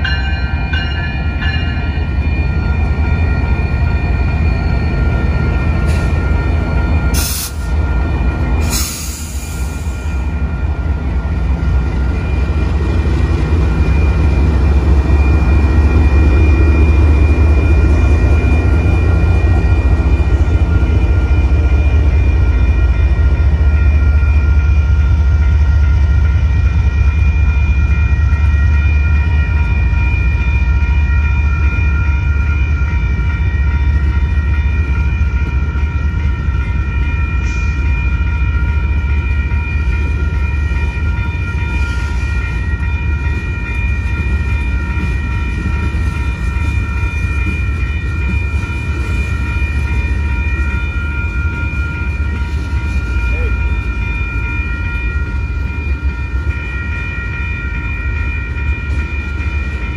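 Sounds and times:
diesel locomotive passing: 0.0 - 59.9
steady high ringing tone: 0.0 - 59.9
train wheels rumbling on rail: 0.0 - 59.9.

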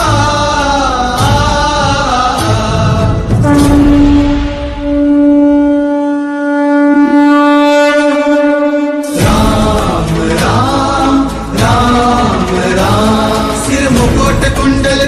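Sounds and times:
devotional music with chanting voices: 0.0 - 5.1, 9.0 - 15.0
blown horn note: 3.3 - 10.2.

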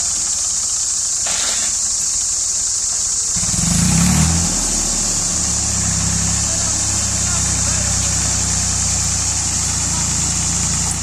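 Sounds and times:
steady high hiss: 0.0 - 11.0
tractor diesel engine running: 3.0 - 11.0.

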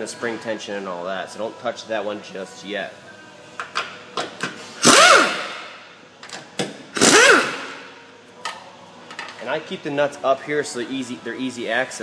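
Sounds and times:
air ratchet motor whirring: 4.8 - 5.8, 7.0 - 7.8.

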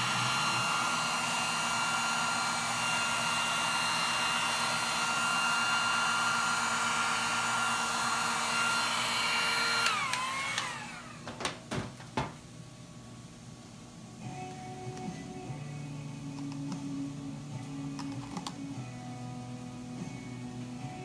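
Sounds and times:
heat gun blowing with whine: 0.0 - 11.4
sharp knocks: 11.3 - 12.4.

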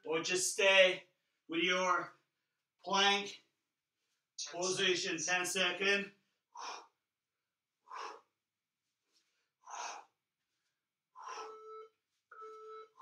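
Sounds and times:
man breathing out hard: 6.6 - 7.0, 7.8 - 8.3, 9.6 - 10.2, 11.2 - 11.6
phone beeping: 11.4 - 13.0.

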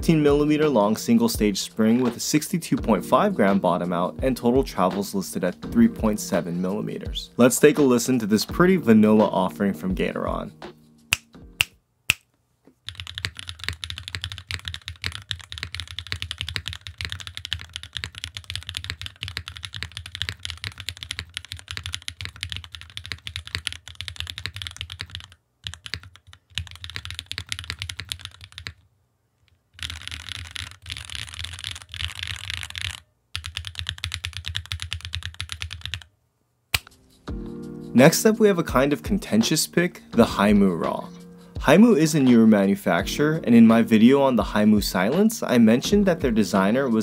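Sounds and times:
fast mechanical keyboard typing: 12.8 - 28.8, 29.8 - 36.1.

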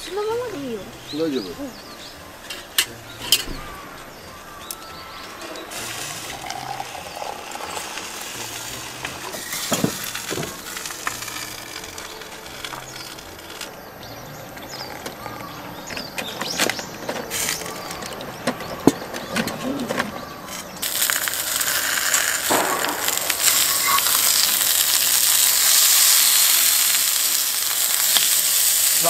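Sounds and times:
soft background music: 0.0 - 29.0
food sizzling: 4.5 - 13.7, 20.5 - 29.0
utensils clinking: 4.7 - 13.7.

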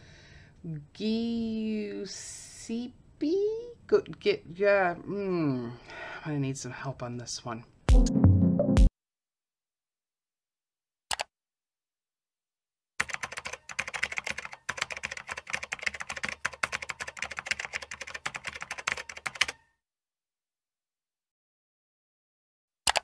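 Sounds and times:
rapid typing on keyboard: 13.0 - 19.6.

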